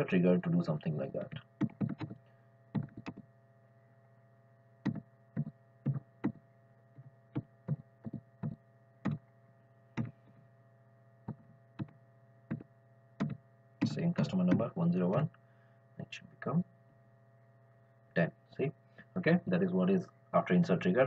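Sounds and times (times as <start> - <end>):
electrical mains hum: 0.0 - 21.0
computer keyboard keystrokes: 1.6 - 2.2, 2.8 - 3.2, 4.9 - 6.4, 13.2 - 14.6.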